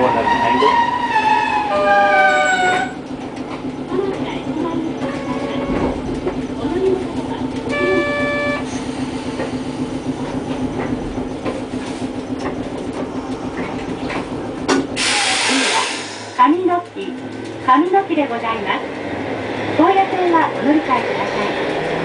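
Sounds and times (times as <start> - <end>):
streetcar hum and rumble: 0.0 - 22.0
hissing air burst: 15.0 - 16.4.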